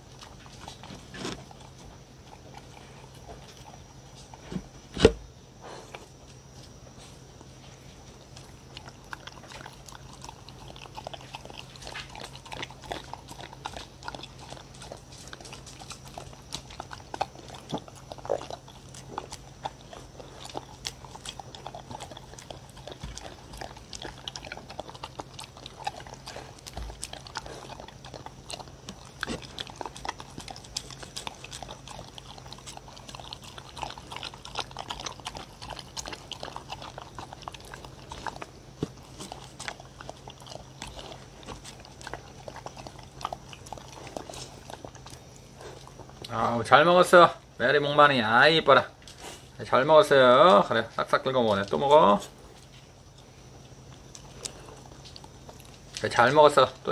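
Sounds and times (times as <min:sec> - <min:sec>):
dogs licking and lapping: 0:07.7 - 0:56.9
tongue and teeth clicking on wood: 0:08.3 - 0:46.4.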